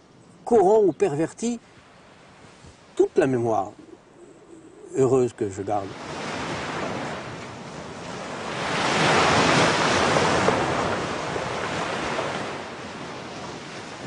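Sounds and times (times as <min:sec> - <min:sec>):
waves washing over pebbles: 0:05.7 - 0:14.0.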